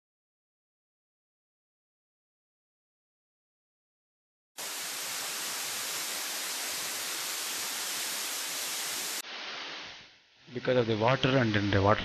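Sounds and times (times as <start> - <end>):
falling water rushing: 4.6 - 10.0.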